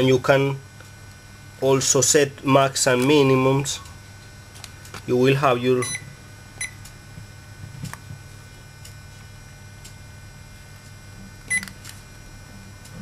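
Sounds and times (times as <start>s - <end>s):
multimeter key-press beeps: 5.8s - 6.8s, 11.5s - 11.8s.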